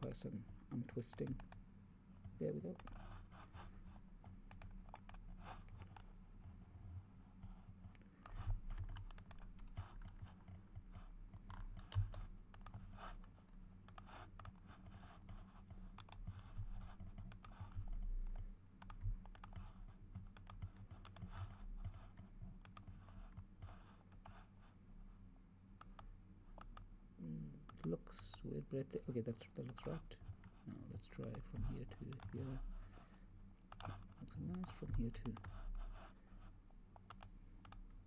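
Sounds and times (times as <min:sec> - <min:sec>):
low electrical hum: 0:00.0 - 0:38.0
mouse and keyboard clicking: 0:01.1 - 0:01.6, 0:02.8 - 0:03.1, 0:04.5 - 0:06.1, 0:08.0 - 0:10.4, 0:11.4 - 0:14.6, 0:15.9 - 0:16.4, 0:17.1 - 0:19.6, 0:20.3 - 0:22.0, 0:22.6 - 0:22.9, 0:29.6 - 0:30.0, 0:33.6 - 0:35.7, 0:37.0 - 0:37.9.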